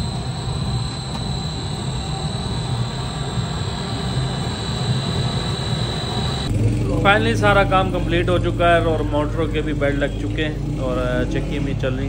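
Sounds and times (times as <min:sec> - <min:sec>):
flour mill motor rumbling: 0:00.0 - 0:06.8
high mechanical whine: 0:00.0 - 0:12.0.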